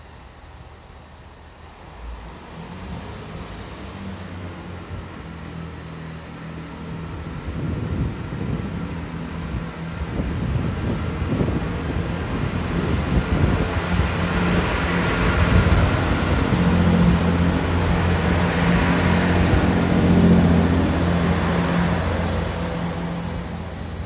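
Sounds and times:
diesel train engines running: 0.0 - 24.0
heavy low rumble: 6.7 - 24.0.

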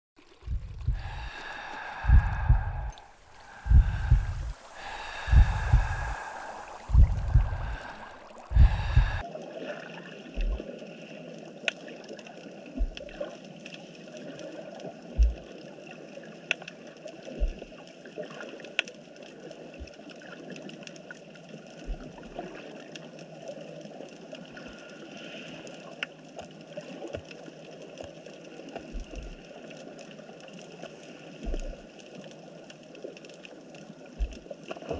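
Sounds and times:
soft low thumps: 0.3 - 9.2, 12.8 - 13.2, 15.2 - 15.4, 17.4 - 17.7, 31.5 - 31.8, 34.2 - 34.4
low thumping beat: 0.5 - 1.4, 2.0 - 3.0, 3.6 - 9.2
underwater hiss of moving water: 0.9 - 9.2.

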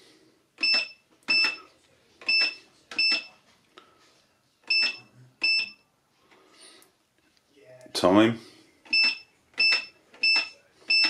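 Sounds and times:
short high keypad beeps: 8.9 - 11.0.

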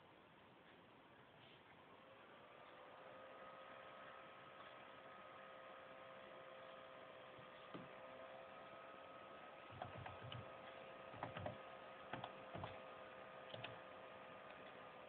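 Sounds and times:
faint electronic hum: 0.0 - 15.0
laptop keys clicking: 9.7 - 10.5, 11.1 - 12.8, 13.5 - 13.8.

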